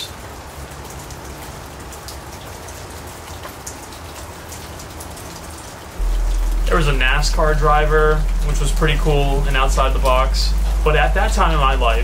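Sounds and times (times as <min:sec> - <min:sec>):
steady rain: 0:00.0 - 0:12.0
drops ticking: 0:06.0 - 0:12.0.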